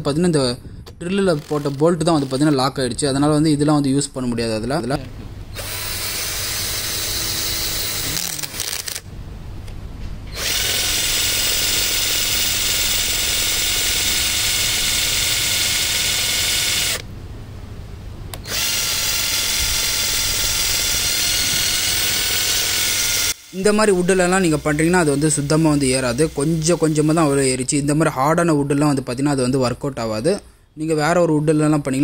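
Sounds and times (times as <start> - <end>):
cordless drill whining: 1.0 - 2.6, 5.6 - 9.0, 10.3 - 17.0, 18.4 - 27.5.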